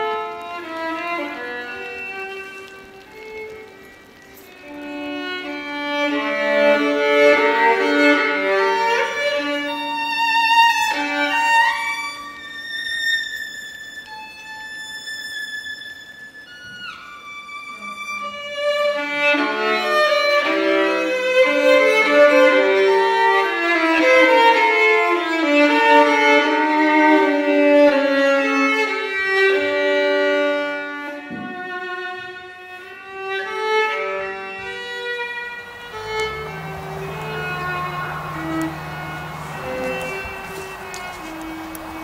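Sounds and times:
violin playing classical melody: 0.0s - 42.0s
low steady tone: 35.4s - 42.0s.

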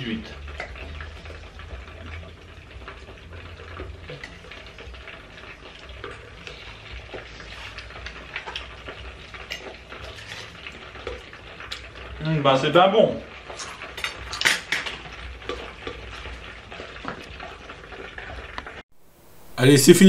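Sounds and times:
hot oil sizzling and bubbling: 0.0s - 19.6s
forks and knives clinking on plates: 13.6s - 16.0s.

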